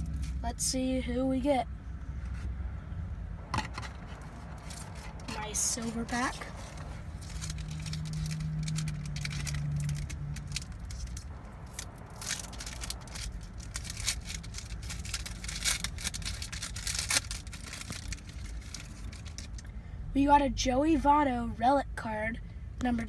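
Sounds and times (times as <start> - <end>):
foil pack tearing and crinkling: 4.6 - 19.6.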